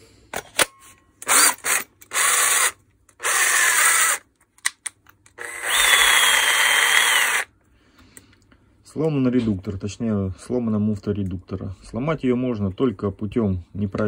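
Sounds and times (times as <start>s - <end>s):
cordless drill motor whirring: 1.2s - 4.2s, 5.4s - 7.5s.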